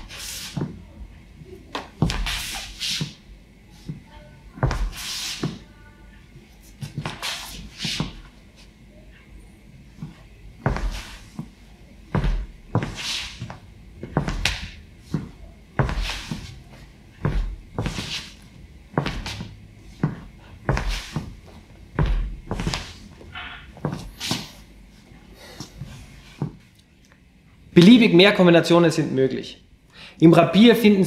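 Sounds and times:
footsteps on wooden floor: 1.8 - 2.4, 3.8 - 5.7, 9.9 - 24.5, 25.8 - 26.6
shoe soles scuffing wood: 1.8 - 3.2, 4.6 - 5.7, 6.7 - 8.3, 10.0 - 11.5, 12.1 - 24.5.

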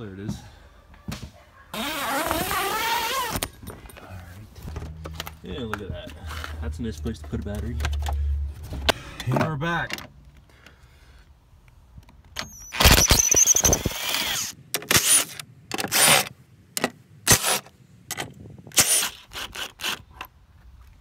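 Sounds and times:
impact driver whining: 12.4 - 15.3.

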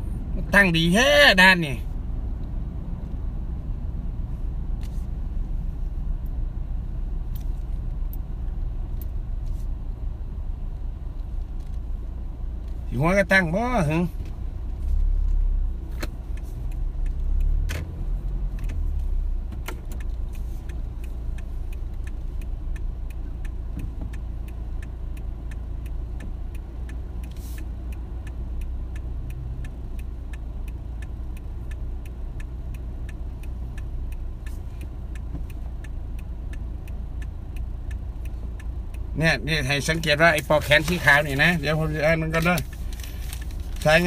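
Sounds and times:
car cabin low rumble: 0.0 - 44.0
light ticking: 4.8 - 44.0.

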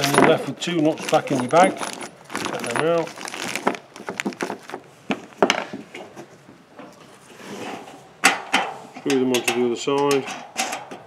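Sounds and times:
metal nuts clinking: 0.0 - 3.7, 8.2 - 11.0.

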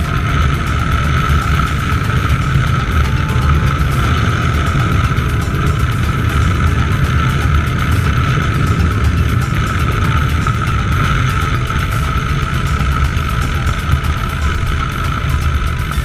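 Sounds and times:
high whine: 0.0 - 16.0
motorcycle engine running: 0.0 - 16.0
wind rush: 0.0 - 16.0.

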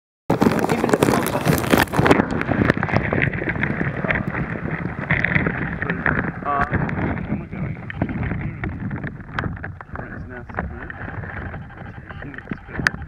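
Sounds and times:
plastic bag knocking and rustling: 0.3 - 4.4
water sloshing: 0.3 - 12.6.

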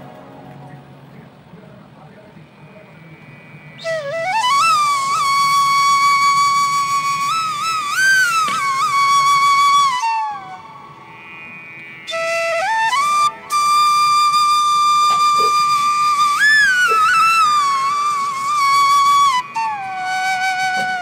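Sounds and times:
solo flute melody: 3.8 - 11.1, 12.0 - 21.0.

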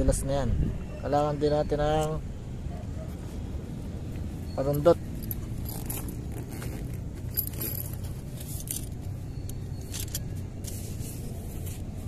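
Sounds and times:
small metal parts clicking on wood: 7.3 - 10.4.

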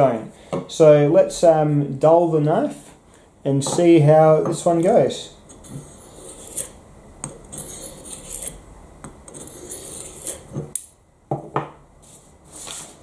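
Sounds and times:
knife scraping on block: 5.5 - 8.6, 9.3 - 10.7.

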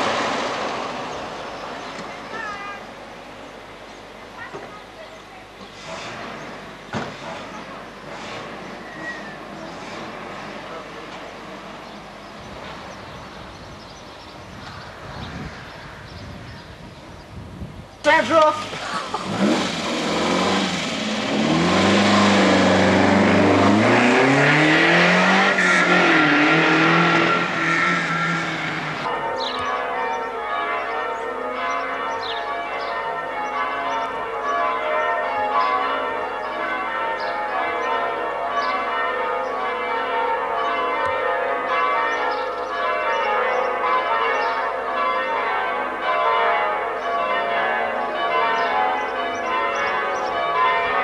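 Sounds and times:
sports car engine accelerating: 18.7 - 29.1
church bells ringing: 27.2 - 51.0.

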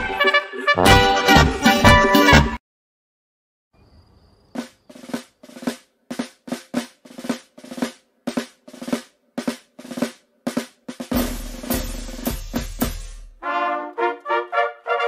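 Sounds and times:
brass band playing march: 0.1 - 2.6, 13.4 - 15.0
snare drums playing march cadence: 4.6 - 13.4
bass drum: 11.1 - 13.4.

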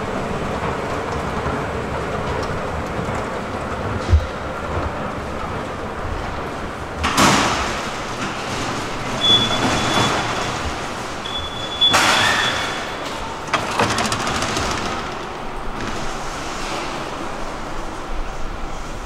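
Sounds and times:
busy station noise: 0.0 - 19.0
ticket gates knocking: 7.0 - 15.6
high electronic beep: 9.2 - 10.5, 11.2 - 12.6.

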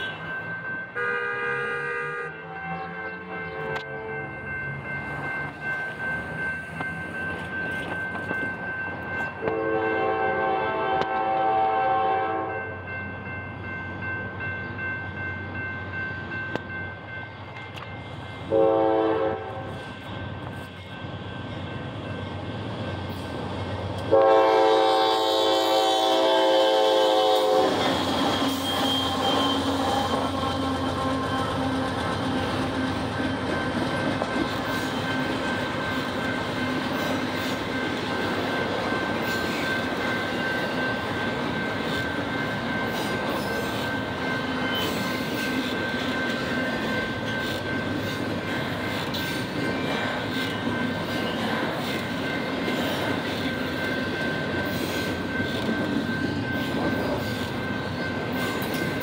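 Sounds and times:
train rumbling and wheel clatter: 0.0 - 59.0
locomotive air horn blasts: 1.0 - 4.3, 9.4 - 12.7, 18.5 - 19.8, 24.1 - 30.0.

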